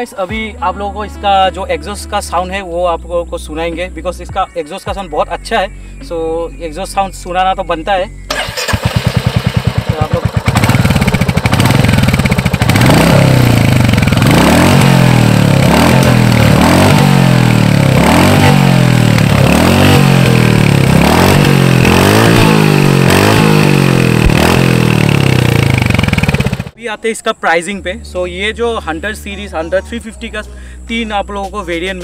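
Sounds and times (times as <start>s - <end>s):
motorcycle engine idling and revving: 8.1s - 26.8s.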